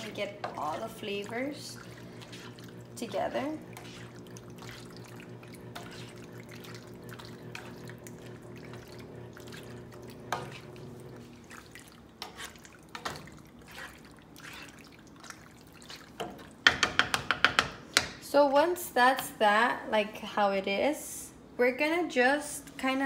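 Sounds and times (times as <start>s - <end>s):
spoon stirring pasta in sauce: 0.0s - 18.1s
spoon knocking against pan: 16.2s - 18.2s.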